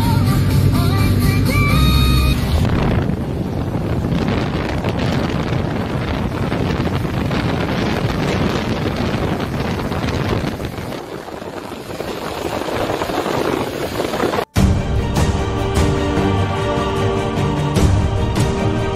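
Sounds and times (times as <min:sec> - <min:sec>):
music: 0:00.0 - 0:02.6, 0:14.5 - 0:18.9
wind buffeting microphone: 0:02.4 - 0:14.5
heavy rain: 0:02.4 - 0:18.9.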